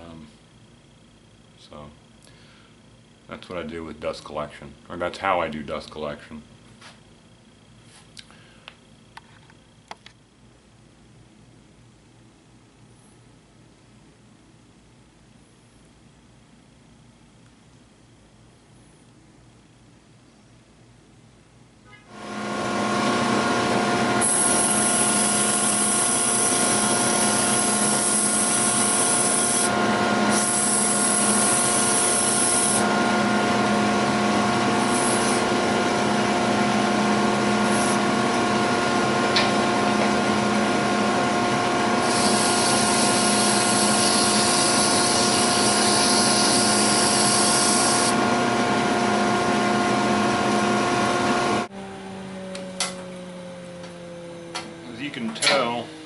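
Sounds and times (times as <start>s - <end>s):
lathe and dust collector motor hum: 22.1s - 56.0s
sandpaper hissing on spinning wood: 24.2s - 29.7s, 30.3s - 32.8s, 34.8s - 35.5s, 42.0s - 48.1s.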